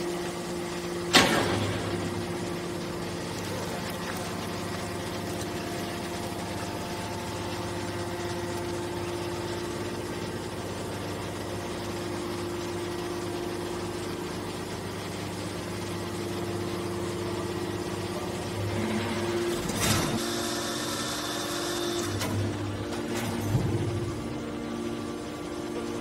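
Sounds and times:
hydraulic pump humming: 0:00.0 - 0:26.0.

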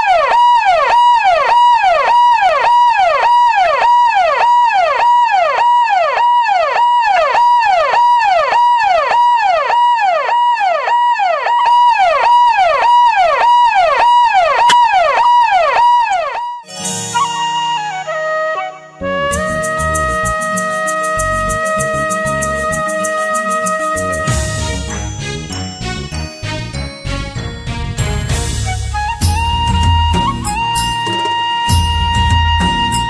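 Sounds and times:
electronic siren: 0:00.0 - 0:24.6.

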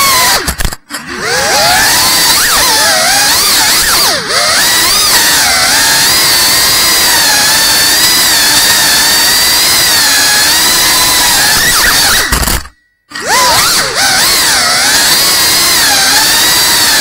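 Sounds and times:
quadcopter motors whining: 0:00.0 - 0:17.0.

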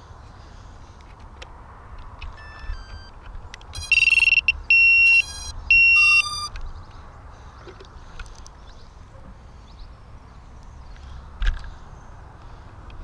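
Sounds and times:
high-pitched electronic beeps: 0:02.3 - 0:06.5
faint short electronic tones: 0:02.4 - 0:03.1, 0:03.8 - 0:06.5.

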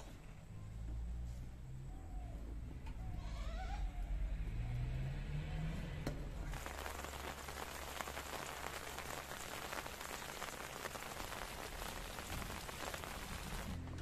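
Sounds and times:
rain falling on leaves: 0:06.5 - 0:13.8.

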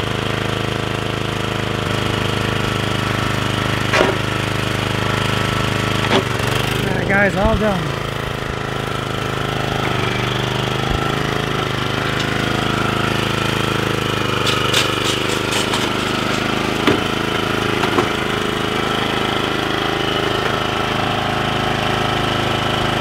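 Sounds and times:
mower engine running: 0:00.0 - 0:23.0
light rattles: 0:14.2 - 0:18.1
knocks: 0:14.4 - 0:17.2.

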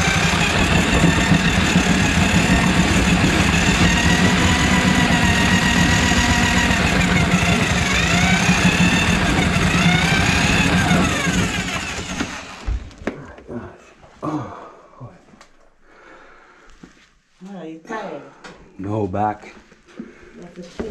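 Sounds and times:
drain auger motor humming: 0:00.0 - 0:13.1.

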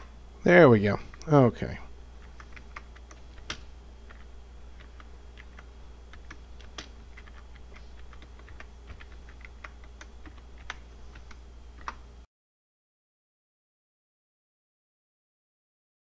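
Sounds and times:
steady low hum: 0:00.0 - 0:12.3
computer keyboard typing: 0:02.2 - 0:12.0.

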